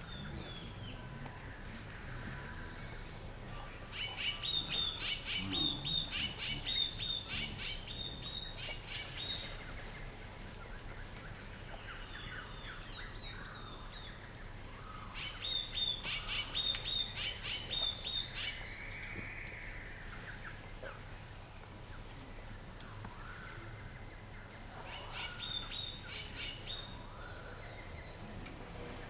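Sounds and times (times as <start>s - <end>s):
faint bird chirps: 21.8s - 29.0s.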